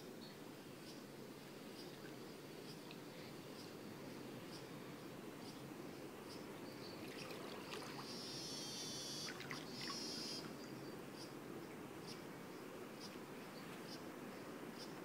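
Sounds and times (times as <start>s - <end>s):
low background noise: 0.0s - 15.0s
pool water moving: 7.0s - 8.4s, 9.2s - 10.6s.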